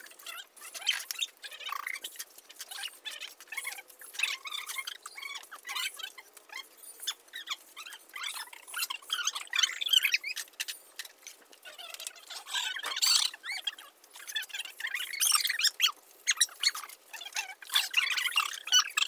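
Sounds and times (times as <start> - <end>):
trowel scraping and squeaking: 0.0 - 19.0.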